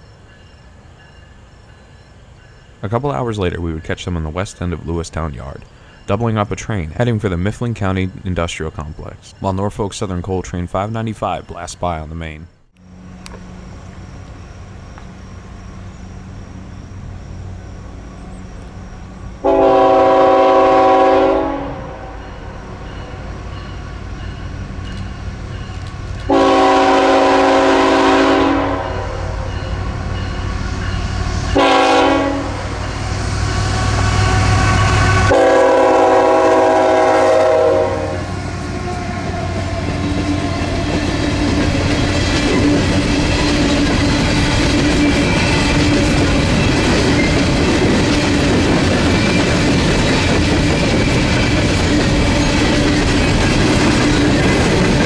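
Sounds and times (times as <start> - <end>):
diesel locomotive rumble: 12.2 - 55.0
train horn blasts: 19.4 - 22.4, 26.2 - 30.3, 30.9 - 39.7
wheels clattering on rails: 22.9 - 26.3, 38.6 - 55.0.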